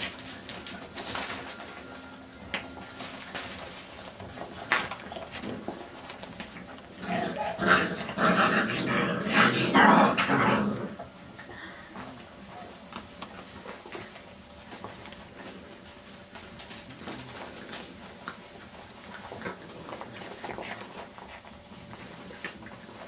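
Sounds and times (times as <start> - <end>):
puppies growling and yapping: 4.1 - 11.5, 17.1 - 23.0.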